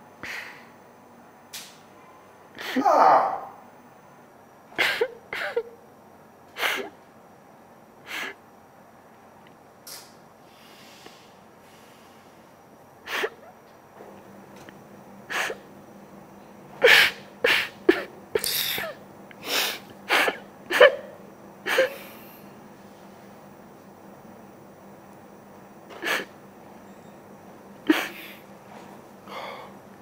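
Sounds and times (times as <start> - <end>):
woman crying: 2.6 - 3.4.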